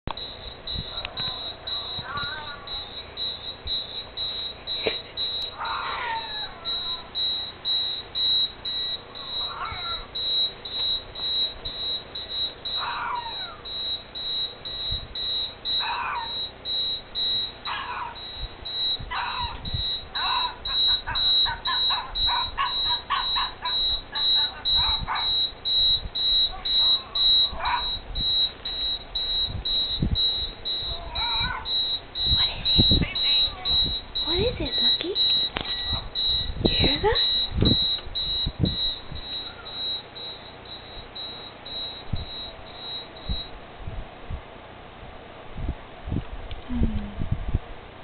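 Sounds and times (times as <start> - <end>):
high pulsing beep: 0.1 - 43.5
puppy yapping: 4.9 - 7.1, 9.2 - 10.2, 12.7 - 13.7, 15.8 - 16.5, 17.7 - 18.3, 19.1 - 25.4, 26.9 - 28.0, 30.9 - 31.7.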